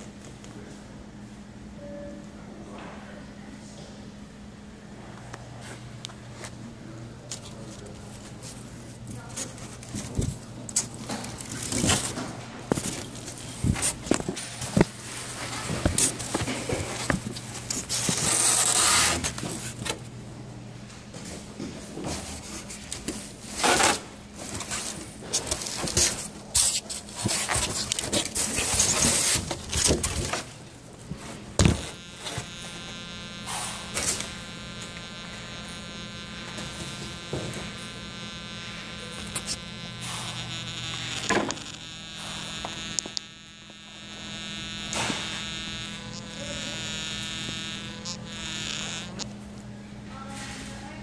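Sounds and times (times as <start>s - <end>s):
low steady hum: 0.0s - 51.0s
high electric buzz: 11.1s - 20.0s, 23.5s - 49.5s.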